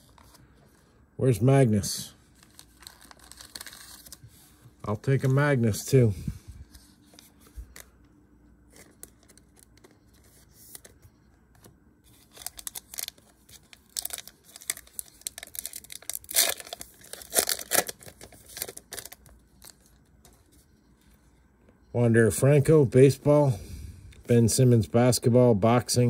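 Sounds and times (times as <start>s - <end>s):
wrapper tearing and crinkling: 2.4s - 4.2s, 12.1s - 19.9s.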